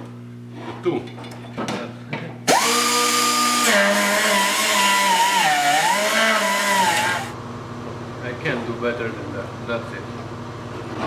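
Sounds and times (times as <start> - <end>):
air grinder grinding metal: 2.5 - 7.4.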